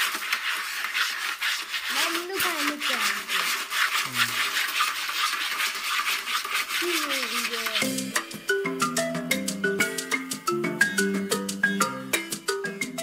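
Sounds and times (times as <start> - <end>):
cat scratching in litter: 0.0 - 8.0.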